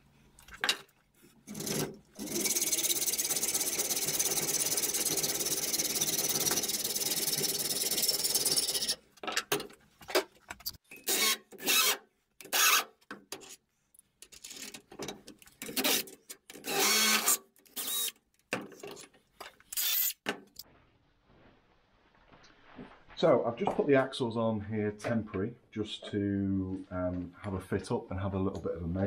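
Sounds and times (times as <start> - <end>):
hacksaw cutting steel: 1.5 - 9.0, 10.9 - 13.6, 15.6 - 18.1.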